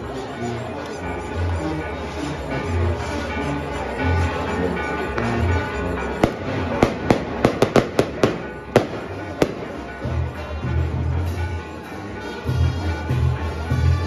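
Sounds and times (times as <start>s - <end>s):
music playing: 0.0s - 14.0s
firecrackers banging: 6.2s - 10.2s.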